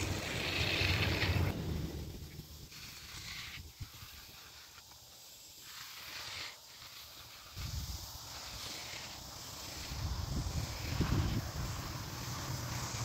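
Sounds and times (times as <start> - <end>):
low rumble: 0.0 - 2.6
float swishing over wet concrete: 0.0 - 13.0.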